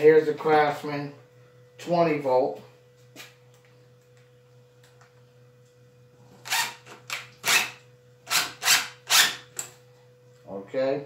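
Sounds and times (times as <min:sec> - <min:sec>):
impact driver driving screw into wood: 0:06.5 - 0:09.4.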